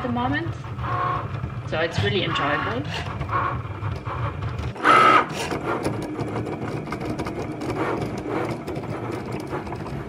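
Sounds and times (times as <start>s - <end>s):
cutting machine motor whir: 0.0s - 10.0s.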